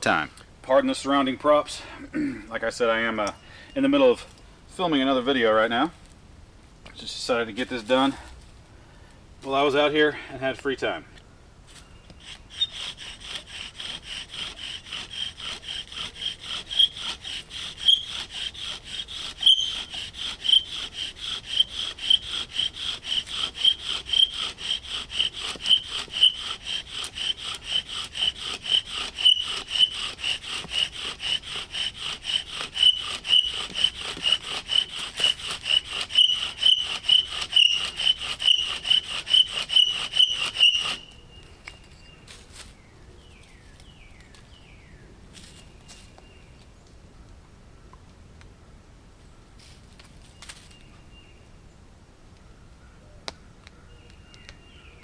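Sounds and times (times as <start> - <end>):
bow drill sawing: 12.1 - 41.1
drill squealing: 16.7 - 18.5, 19.3 - 20.8, 23.6 - 29.9, 32.8 - 34.8, 36.0 - 41.1.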